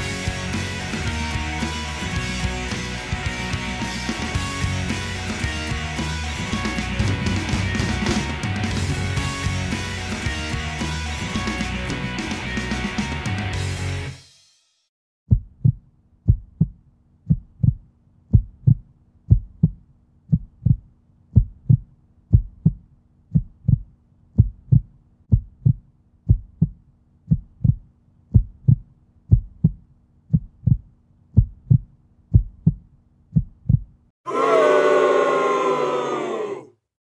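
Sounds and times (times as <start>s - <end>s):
heartbeat thumps: 15.3s - 34.0s.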